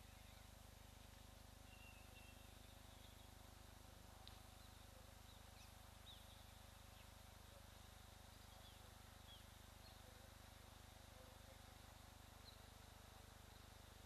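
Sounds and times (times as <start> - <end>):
faint bird chirps: 0.0 - 0.6, 1.6 - 3.6, 4.2 - 7.8, 8.4 - 12.8.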